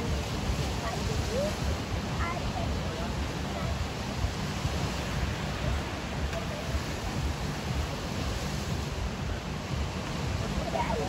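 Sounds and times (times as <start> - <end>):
faint crowd voices: 0.0 - 11.0
surf: 0.0 - 11.0
wind on microphone: 0.0 - 11.0.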